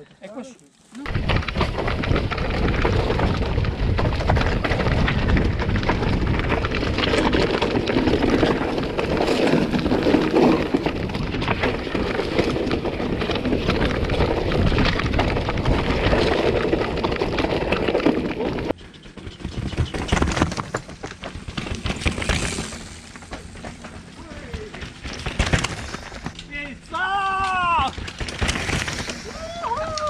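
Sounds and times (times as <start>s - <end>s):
tyres rumbling over rock and gravel: 1.1s - 26.5s, 27.4s - 30.0s
bike rattling clicks: 27.4s - 30.0s.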